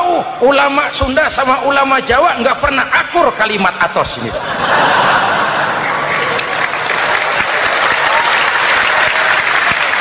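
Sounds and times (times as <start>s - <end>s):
audience applauding: 5.7s - 10.0s.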